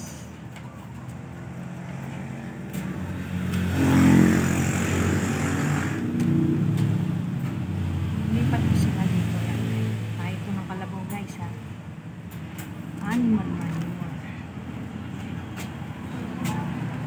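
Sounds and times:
vehicle engine passing by: 0.0 - 10.8.

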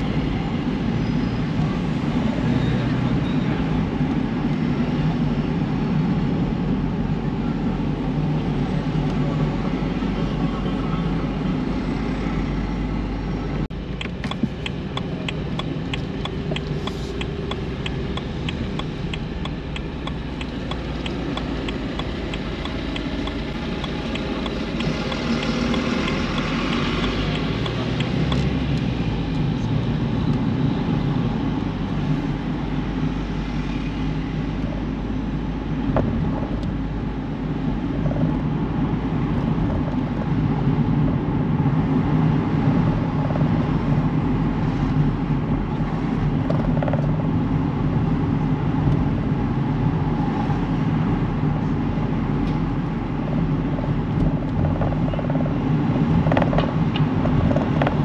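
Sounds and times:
car engine rumble: 0.0 - 58.0
road noise: 0.0 - 58.0.

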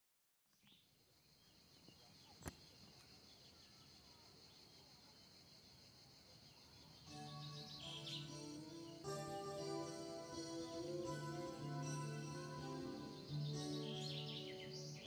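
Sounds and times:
faint bird chirps: 0.5 - 9.1, 12.2 - 15.0
insect chirring: 0.6 - 9.1.

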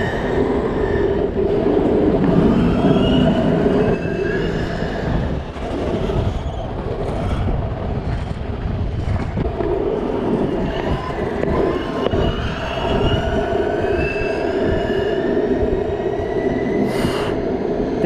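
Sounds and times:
scooter wheels rolling on asphalt: 0.0 - 18.0
street traffic: 0.0 - 18.0
faint high squeals: 2.3 - 5.3, 10.5 - 17.5.

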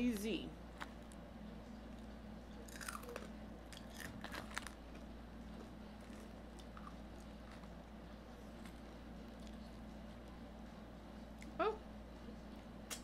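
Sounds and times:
steady low hum: 0.0 - 13.0
fried chicken crust crunching: 2.6 - 7.8.

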